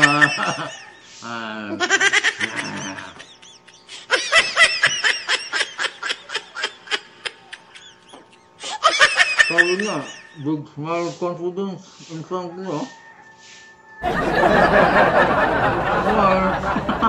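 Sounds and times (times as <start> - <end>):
man laughing: 0.0 - 10.7, 14.0 - 17.0.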